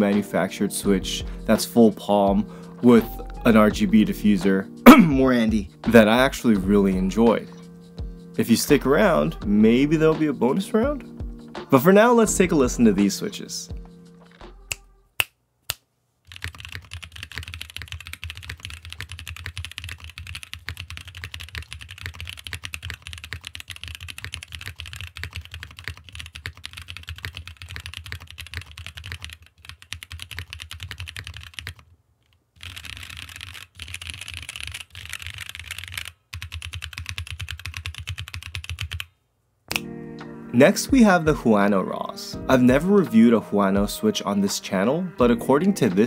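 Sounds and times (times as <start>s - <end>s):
mechanical keyboard typing: 16.3s - 31.8s, 32.6s - 39.1s.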